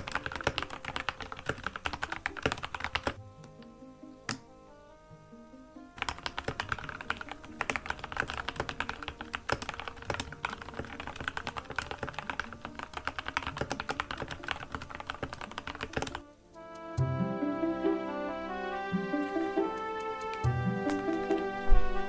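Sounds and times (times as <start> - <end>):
mechanical keyboard typing: 0.0 - 3.2, 6.0 - 16.2
soft background music: 0.0 - 22.0.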